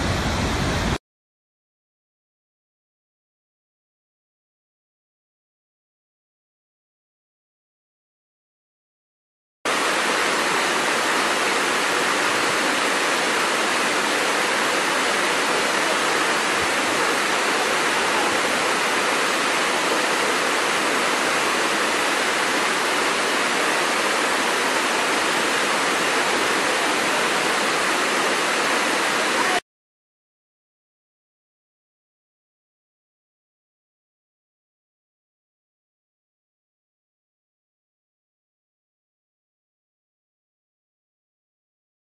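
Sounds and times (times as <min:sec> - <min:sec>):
waterfall rushing: 0:00.0 - 0:01.0, 0:09.7 - 0:29.6.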